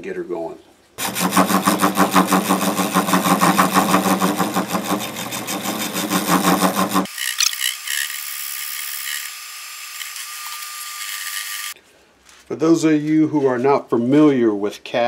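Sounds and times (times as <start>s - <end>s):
lathe scraping and rasping: 1.0s - 9.3s.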